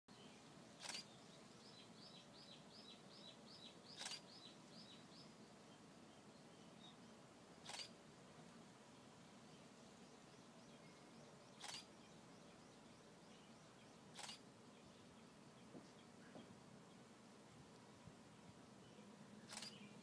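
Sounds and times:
small bird singing: 0:00.1 - 0:07.9, 0:08.9 - 0:20.0
quiet outdoor hush: 0:00.1 - 0:20.0.

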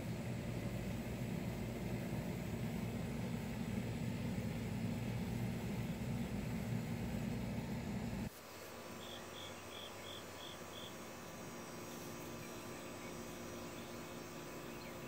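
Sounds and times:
cricket chirping: 0:08.5 - 0:15.0.

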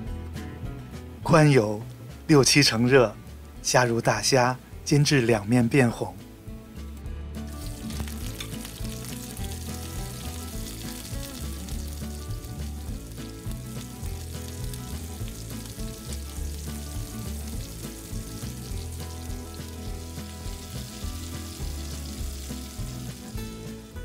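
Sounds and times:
background music: 0:00.0 - 0:24.0
shrimp sizzling in hot oil: 0:07.4 - 0:24.0.

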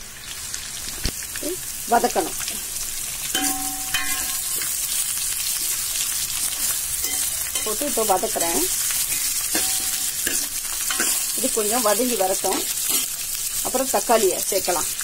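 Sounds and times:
vegetables sizzling in hot oil: 0:00.0 - 0:15.0
ladle clinking on pan: 0:03.4 - 0:04.7, 0:09.1 - 0:11.2.

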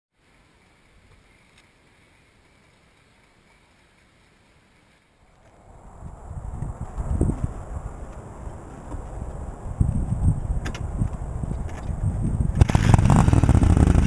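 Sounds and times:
faint hiss: 0:00.2 - 0:06.5
motorcycle engine running: 0:12.3 - 0:14.0.

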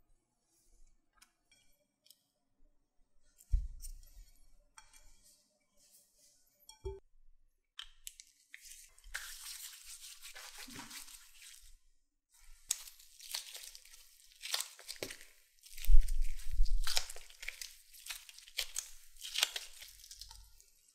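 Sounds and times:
plastic gloves rustling: 0:08.4 - 0:11.8, 0:12.4 - 0:20.9
sticky dough squeezing: 0:12.6 - 0:20.9.

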